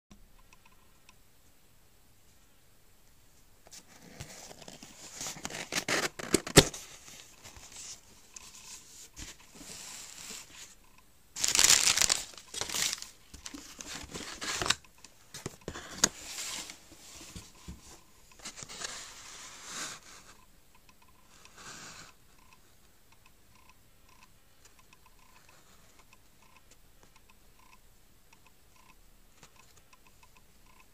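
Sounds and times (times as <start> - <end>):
newspaper rustling and crinkling: 11.4 - 14.8.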